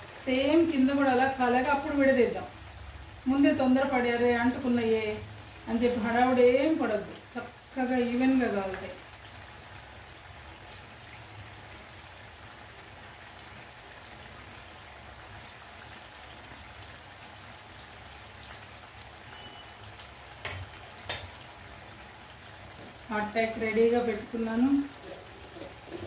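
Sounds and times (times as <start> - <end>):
food sizzling in hot oil: 0.0 - 26.0.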